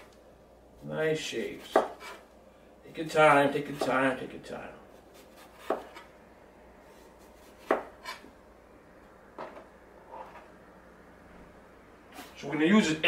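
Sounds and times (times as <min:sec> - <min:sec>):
knife cutting on cutting board: 0:01.6 - 0:02.2, 0:05.1 - 0:06.1, 0:07.2 - 0:08.3.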